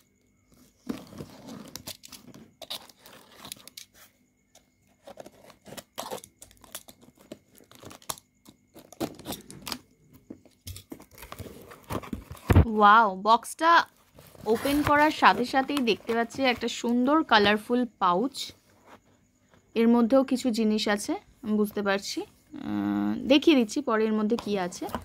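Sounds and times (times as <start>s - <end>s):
cardboard crackling: 0.6s - 4.1s, 14.0s - 17.6s
tape tearing: 0.8s - 3.9s, 5.0s - 9.8s
knife slitting packing tape: 1.3s - 3.9s, 5.0s - 9.8s.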